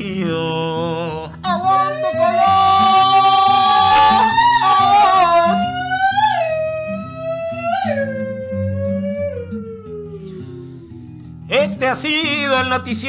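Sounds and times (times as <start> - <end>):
strummed acoustic guitar: 0.0 - 8.6, 10.1 - 13.0
man singing long wailing note: 0.3 - 10.2.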